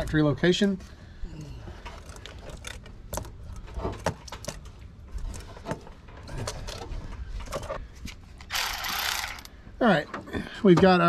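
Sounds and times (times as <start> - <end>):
plastic parts clicking and knocking: 8.4 - 9.5.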